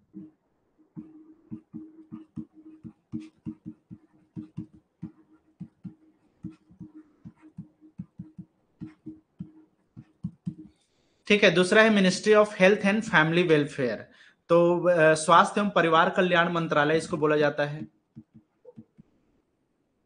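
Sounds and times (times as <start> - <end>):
stylus tapping and scratching: 0.0 - 10.9, 16.9 - 19.2.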